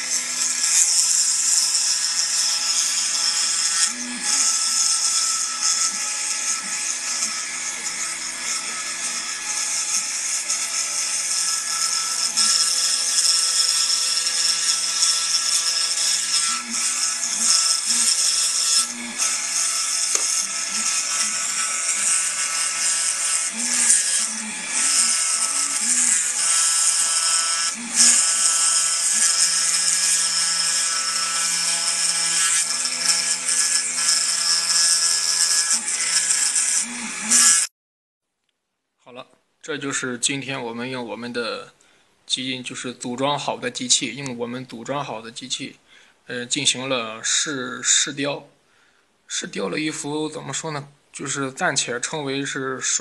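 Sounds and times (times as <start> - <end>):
carving machine cutting wood: 0.0 - 37.7.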